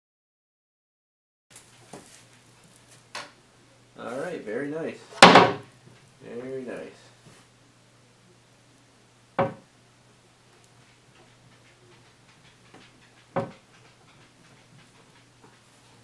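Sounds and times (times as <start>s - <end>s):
wooden cabinet door knocking shut: 5.2s - 5.6s, 9.4s - 9.6s, 13.4s - 13.6s.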